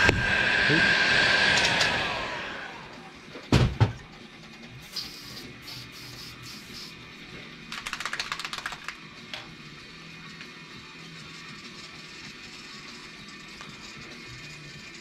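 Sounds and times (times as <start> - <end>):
heat gun blower winding down: 0.0 - 3.2.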